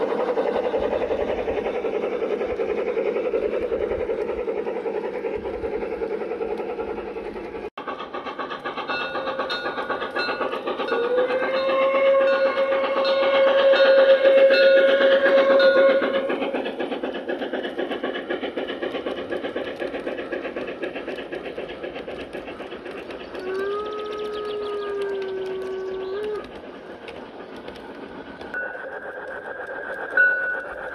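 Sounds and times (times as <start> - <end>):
model train wheels clattering: 0.0 - 30.9
lower train whistle: 10.9 - 16.2
train whistle: 10.9 - 16.3.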